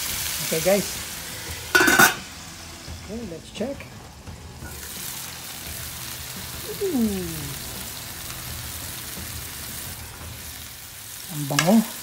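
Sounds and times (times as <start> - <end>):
chicken sizzling in a pan: 0.0 - 12.0
person saying ooh: 6.6 - 7.6.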